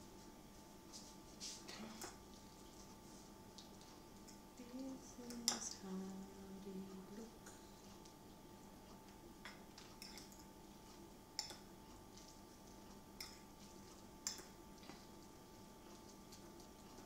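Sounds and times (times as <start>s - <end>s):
quiet steady hum: 0.0s - 17.0s
fork clinking against ceramic bowl: 9.4s - 10.4s.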